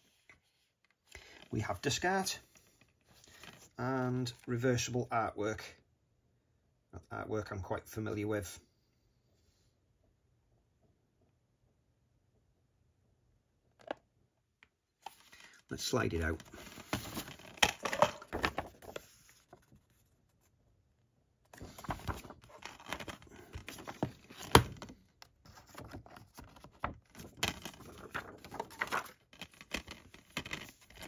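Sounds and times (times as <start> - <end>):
plastic case rustling and clicking: 16.6 - 19.8, 21.6 - 31.0.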